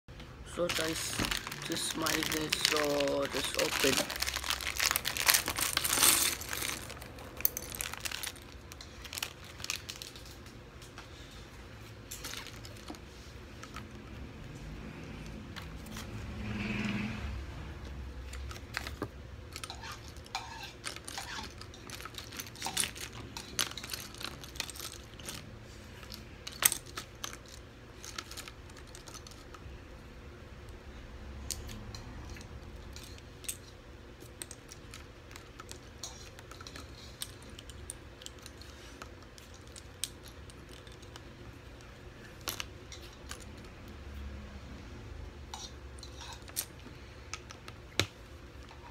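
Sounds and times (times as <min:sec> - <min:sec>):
plastic bricks clicking and clattering: 0:18.4 - 0:25.4.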